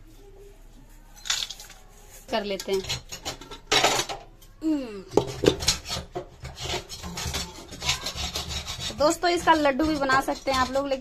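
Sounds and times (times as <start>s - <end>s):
metal spoon scraping steel pot: 5.2s - 11.0s.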